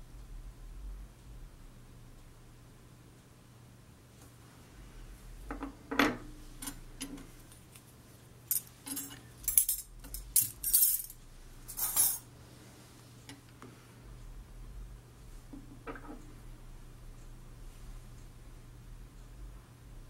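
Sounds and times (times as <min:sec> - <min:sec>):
light metal clicks and clinks: 0:08.5 - 0:12.2.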